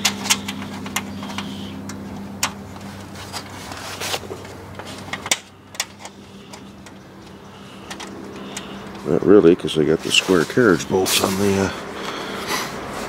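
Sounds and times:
metal hardware clicking and scraping: 0.0s - 9.1s
steady low hum: 0.0s - 13.0s.

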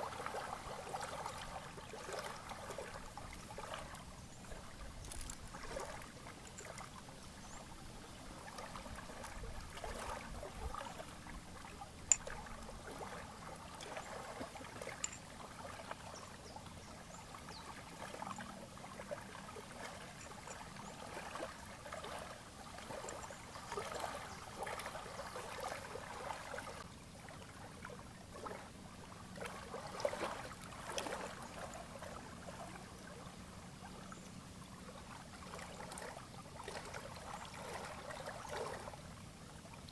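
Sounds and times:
small waves lapping at lake edge: 0.0s - 39.9s.

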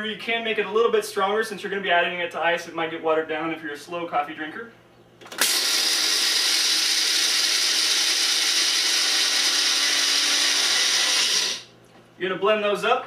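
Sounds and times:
blender grinding coffee beans: 5.3s - 11.7s.

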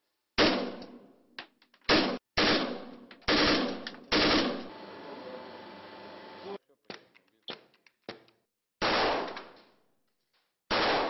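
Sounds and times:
rifle automatic fire bursts: 1.9s - 4.7s.

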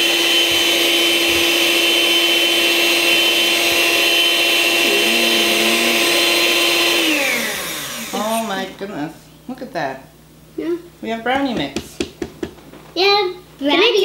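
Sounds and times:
stand mixer motor humming: 0.0s - 8.7s.

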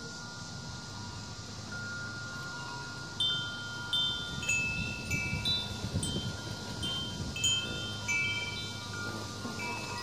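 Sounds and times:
metal wind chimes ringing: 0.0s - 10.0s.

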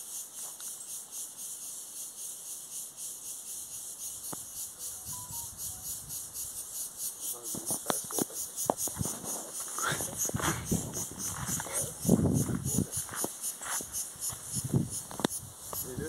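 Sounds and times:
insects shrilling: 0.0s - 16.0s.

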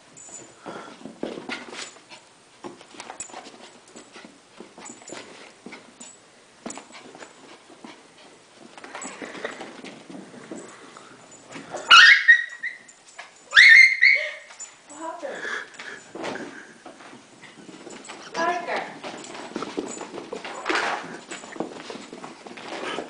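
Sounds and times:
light scuffling and tapping: 0.2s - 11.9s, 14.5s - 23.0s
dog yelping: 11.8s - 12.9s, 13.5s - 14.5s.

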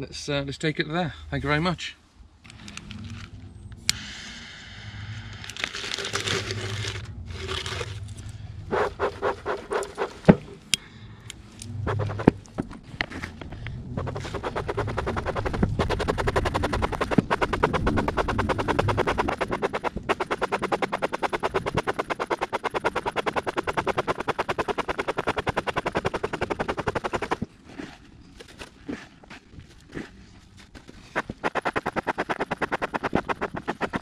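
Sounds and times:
metal tool scraping wood: 8.7s - 10.6s, 11.9s - 13.4s, 14.0s - 27.4s, 31.0s - 34.0s
fast even clicking: 11.9s - 12.5s, 14.0s - 27.5s, 31.2s - 34.0s.

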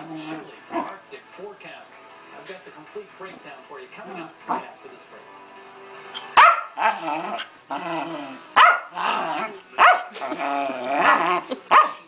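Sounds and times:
dog growling: 0.0s - 1.0s, 6.8s - 12.0s
dog barking: 6.2s - 6.9s, 8.6s - 9.0s, 9.8s - 10.2s, 11.7s - 12.0s.

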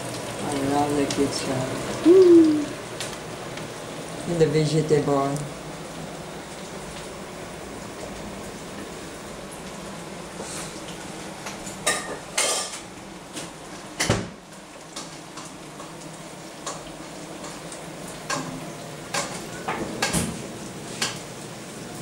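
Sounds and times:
dishes and utensils clattering: 11.8s - 12.9s.

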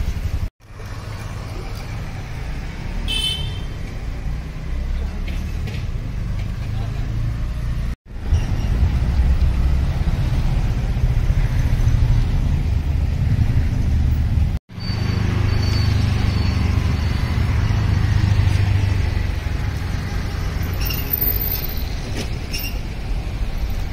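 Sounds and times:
low rumble of road traffic: 0.0s - 23.9s.

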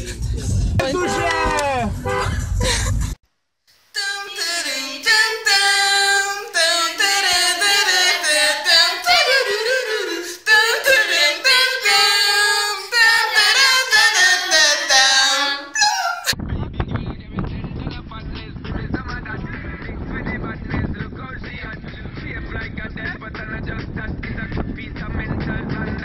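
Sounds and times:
women singing together: 4.0s - 16.3s.

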